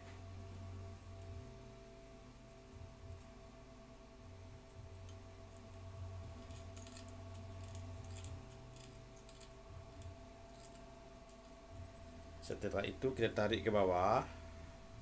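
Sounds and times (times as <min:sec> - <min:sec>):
small clicks and scratches of wire: 0:00.0 - 0:01.4, 0:03.0 - 0:03.4, 0:04.6 - 0:12.2
steady low hum: 0:00.0 - 0:15.0.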